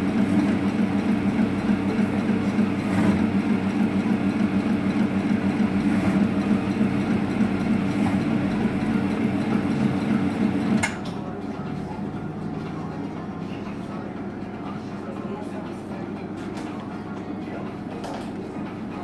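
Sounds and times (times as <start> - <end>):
meat mincing machine running: 0.0 - 11.3.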